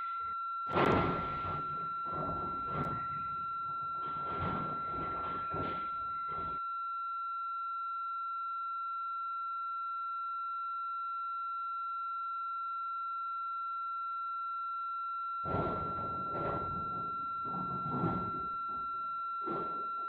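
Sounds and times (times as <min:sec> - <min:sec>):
high-pitched electronic tone: 0:00.0 - 0:06.6.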